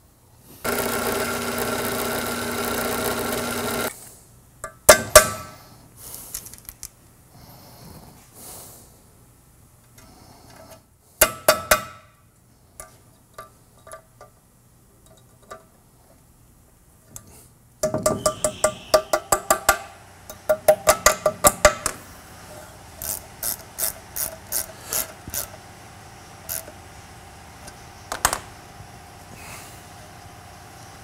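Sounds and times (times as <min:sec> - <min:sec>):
drill press boring steel: 0:00.6 - 0:03.9, 0:22.8 - 0:27.8.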